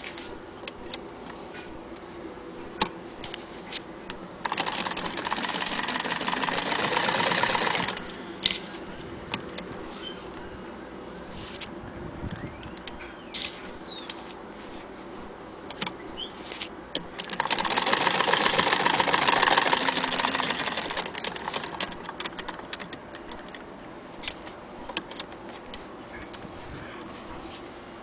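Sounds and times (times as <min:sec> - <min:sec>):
sewing machine stitching: 0:04.4 - 0:08.1, 0:17.0 - 0:23.5.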